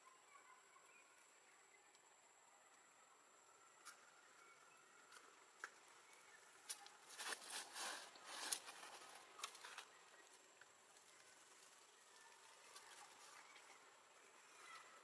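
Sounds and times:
faint rustling and crackling: 0:03.8 - 0:15.0.

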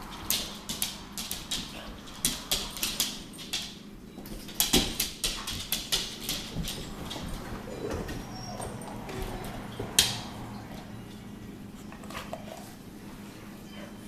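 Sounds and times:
dog claws scrabbling on tiles: 0:00.0 - 0:08.2.

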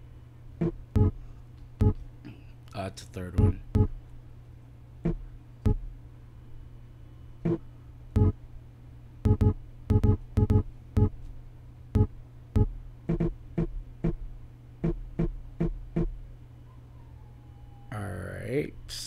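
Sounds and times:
low hum: 0:00.0 - 0:02.6, 0:03.2 - 0:11.2.

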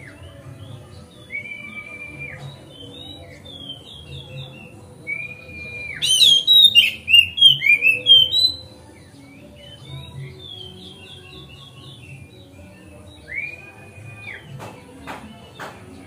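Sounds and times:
songbird chirping and whistling: 0:00.0 - 0:16.0.

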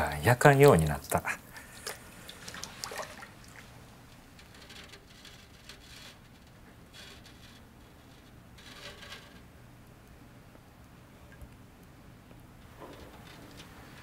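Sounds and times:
liquid glaze sloshing in metal bucket: 0:01.4 - 0:05.6.

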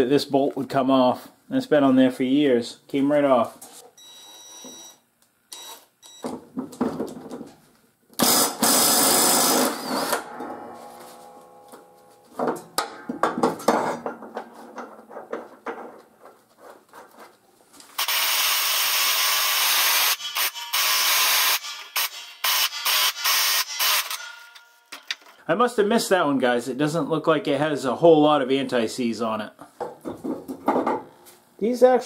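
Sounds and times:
impact wrench hammering: 0:08.2 - 0:14.2, 0:19.8 - 0:25.1.

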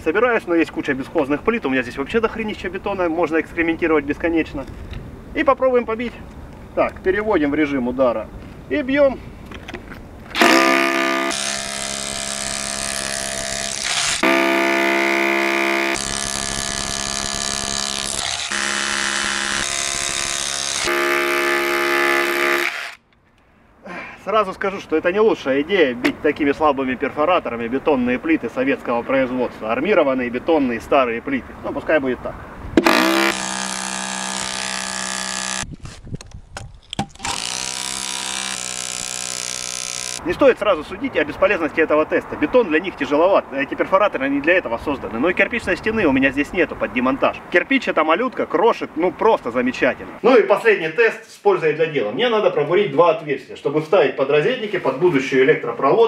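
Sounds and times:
rotary hammer pounding concrete: 0:10.4 - 0:23.0, 0:32.8 - 0:35.6, 0:37.0 - 0:40.2.

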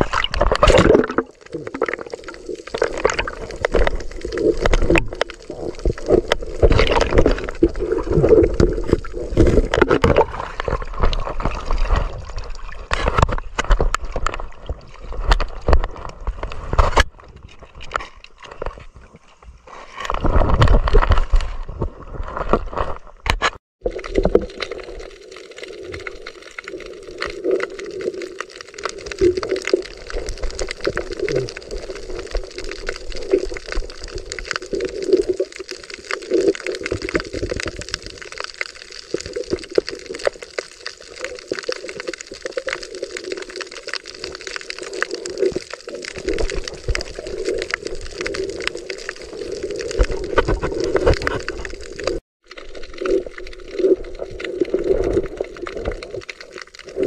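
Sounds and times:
water splashing: 0:00.0 - 0:19.1
water sloshing and gurgling: 0:00.0 - 0:57.0.

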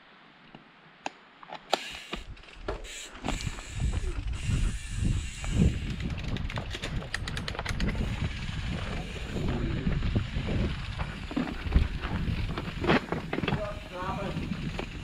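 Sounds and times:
bike rattling and knocking: 0:02.2 - 0:15.0
tyres rumbling over dirt: 0:02.2 - 0:15.0
wind on microphone: 0:02.2 - 0:15.0
rapid clicking: 0:03.8 - 0:09.0.

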